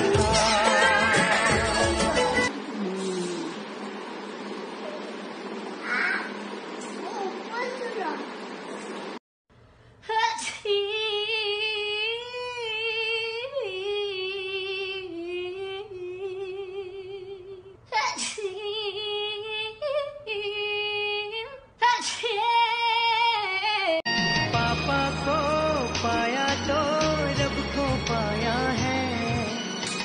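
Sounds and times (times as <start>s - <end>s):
woman singing with vibrato: 0.0s - 2.5s, 10.0s - 27.4s.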